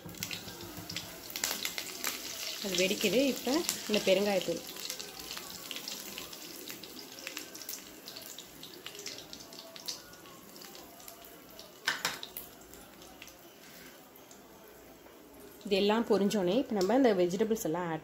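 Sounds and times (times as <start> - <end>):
hot oil sizzling: 0.0 - 13.9
oil crackle: 0.1 - 13.4.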